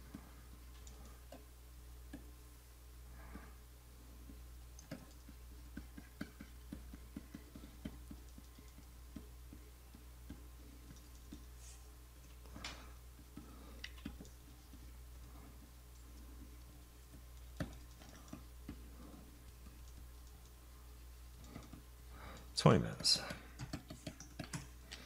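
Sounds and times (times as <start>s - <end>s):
low electrical hum: 0.0s - 25.0s
computer mouse clicks and taps: 0.1s - 1.5s, 4.2s - 11.5s, 12.5s - 20.6s, 21.3s - 22.5s, 23.2s - 25.0s.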